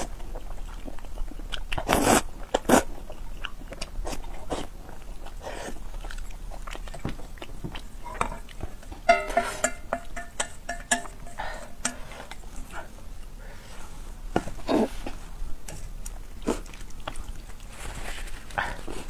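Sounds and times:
chopsticks stirring noodles: 7.8 - 19.0
steel bowl cover lifted: 9.1 - 12.1.

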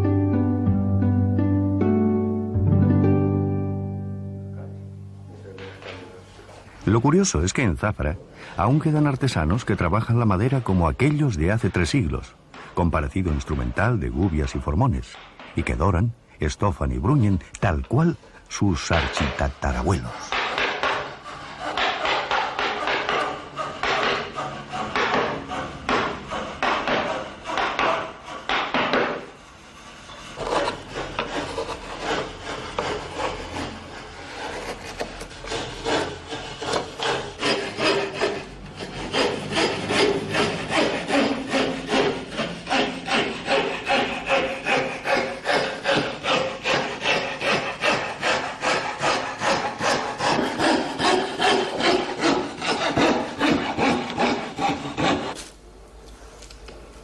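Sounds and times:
hand tools rasping wood: 18.8 - 55.4
fine saw cutting wood: 19.6 - 28.6, 29.2 - 55.4.

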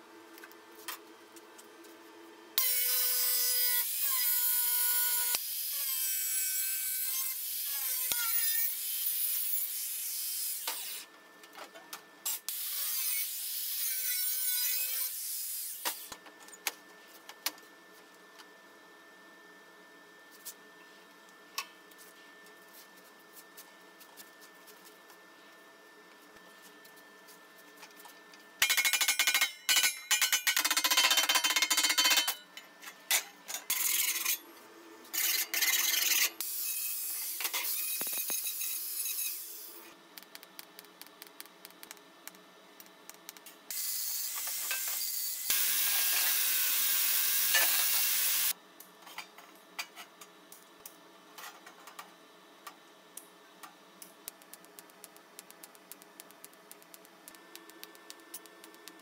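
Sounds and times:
welding arc hissing: 43.7 - 48.5.

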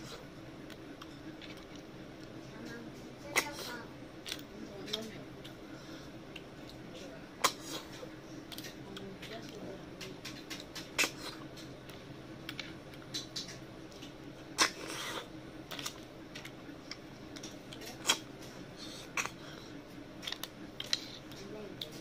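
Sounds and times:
chewing clicks: 20.2 - 22.0.

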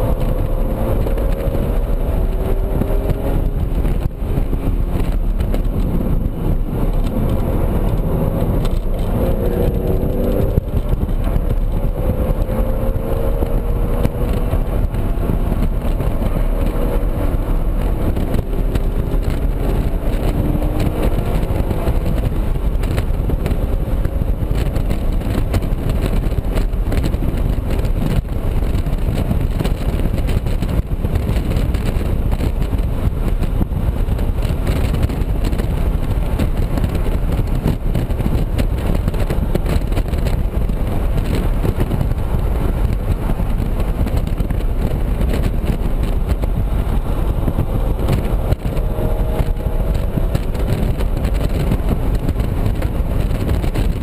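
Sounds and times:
car engine revving: 0.0 - 54.0
wind and road noise: 0.0 - 54.0.

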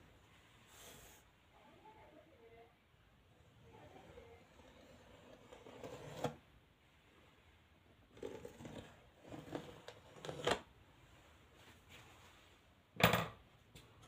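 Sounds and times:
rustling and scraping: 8.1 - 12.7.

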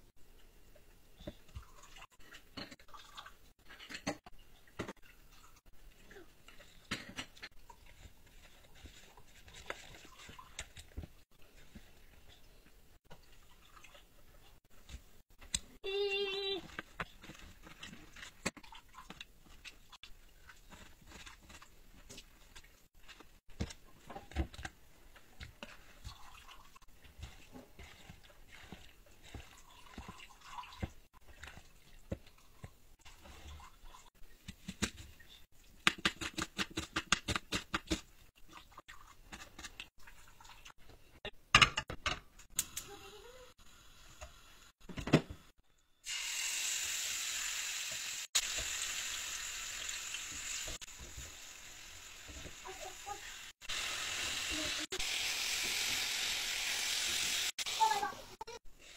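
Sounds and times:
chicken sizzling in frying pan: 46.0 - 58.1.

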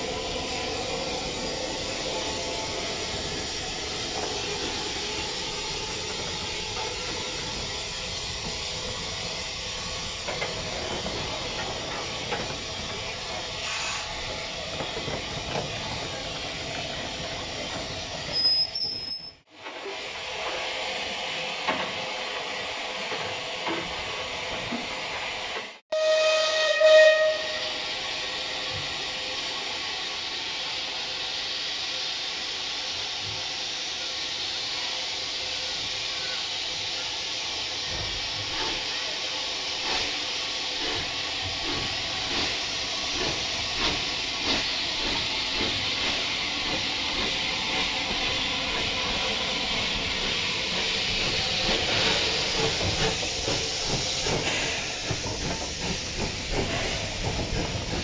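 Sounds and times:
steam hissing: 0.0 - 58.0
brief shrill whistle: 18.3 - 19.4, 25.9 - 27.8
steam locomotive whistle: 25.9 - 28.0.

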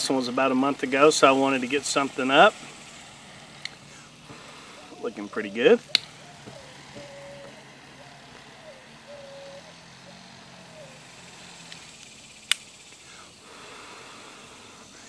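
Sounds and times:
torch lighter: 0.0 - 15.0
puffing on a cigar: 2.1 - 15.0
lighter click: 5.9 - 6.2.

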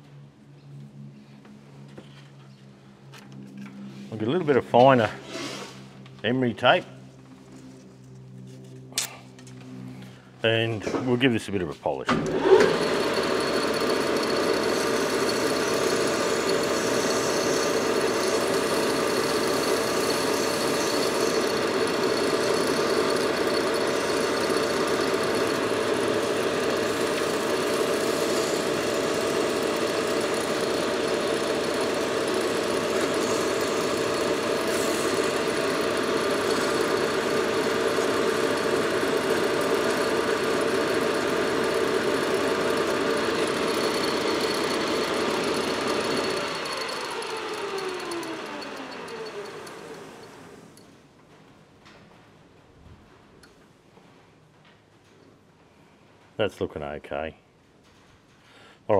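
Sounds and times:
metal lathe motor hum: 12.2 - 50.8.

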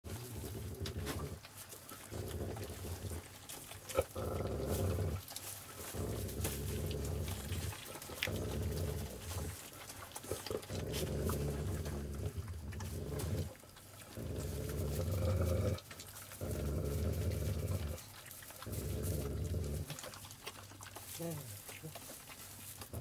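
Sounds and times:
dogs rumbling: 0.0 - 23.0.

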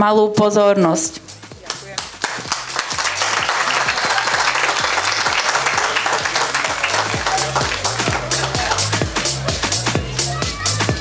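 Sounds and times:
music with steady bass beat: 1.1 - 11.0
audience applauding: 1.6 - 9.9.

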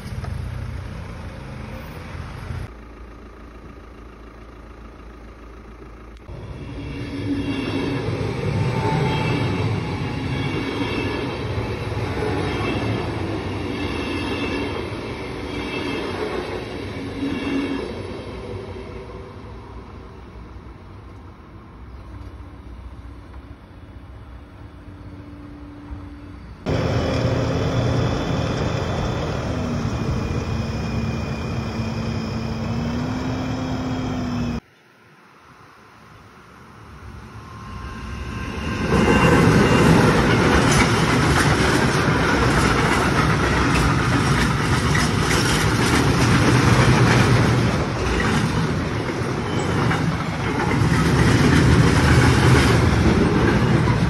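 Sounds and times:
freight train rumbling past: 6.2 - 54.0
steel wheels clattering on rail: 38.8 - 54.0.

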